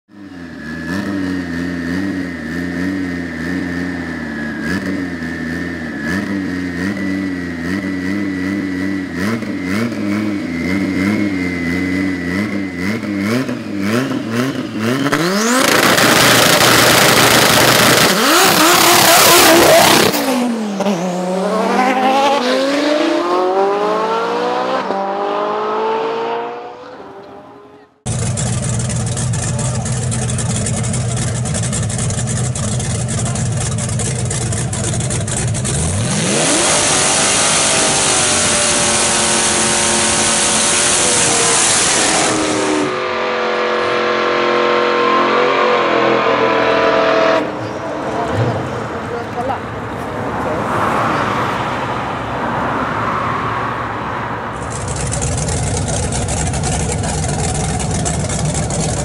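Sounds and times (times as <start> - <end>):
steady high whine: 0.3 - 20.1
race cars launching at full throttle: 0.4 - 59.0
race car engines idling: 1.5 - 14.8, 26.8 - 41.6, 47.4 - 50.7, 54.4 - 59.0.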